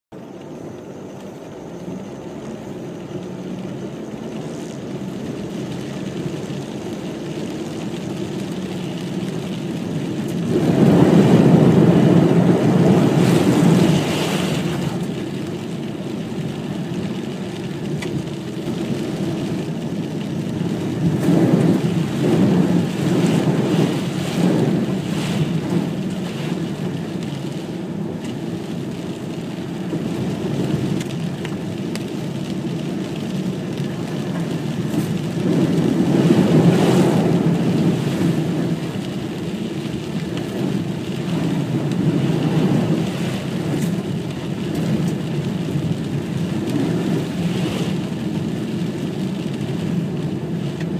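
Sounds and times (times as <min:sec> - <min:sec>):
car splashing through water: 0:06.2 - 0:50.7
rushing water noise: 0:09.3 - 0:16.9.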